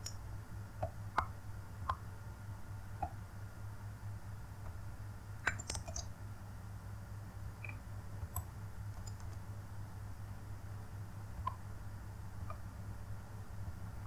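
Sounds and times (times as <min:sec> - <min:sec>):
low steady hum: 0:00.0 - 0:14.0
mouse and keyboard clicks: 0:05.4 - 0:06.1, 0:07.6 - 0:09.4.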